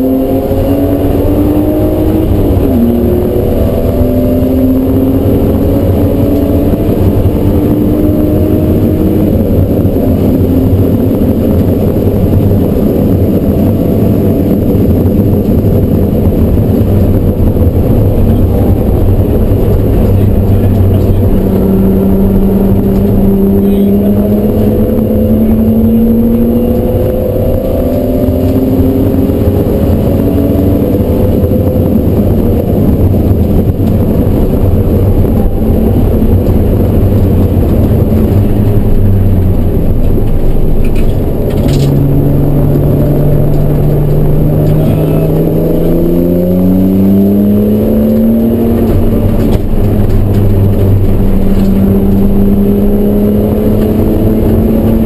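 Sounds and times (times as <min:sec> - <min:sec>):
car engine revving: 0:00.0 - 0:55.0.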